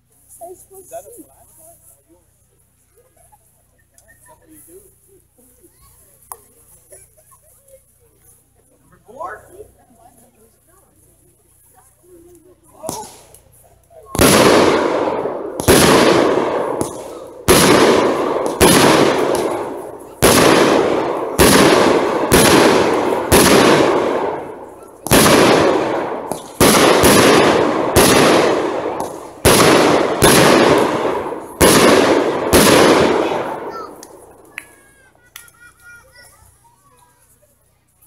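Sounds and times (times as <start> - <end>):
fireworks shells firing: 12.9 - 35.7.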